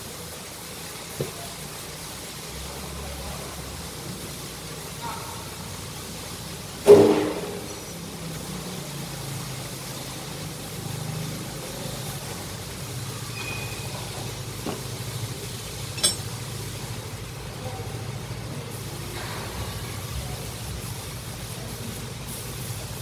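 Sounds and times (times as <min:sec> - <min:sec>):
workshop machinery drone: 0:05.7 - 0:23.0
sharp metallic clink: 0:16.0 - 0:16.3.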